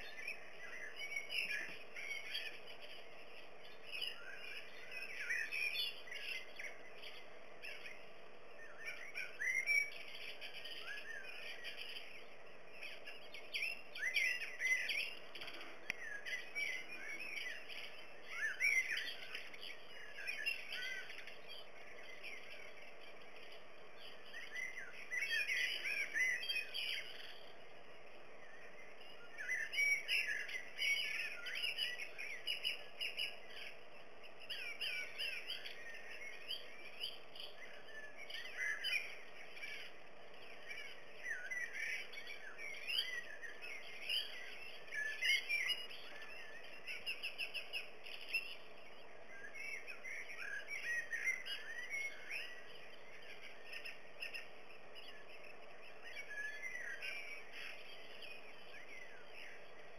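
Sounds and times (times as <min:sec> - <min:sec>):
songbirds chirping and twittering: 0:00.0 - 0:59.9.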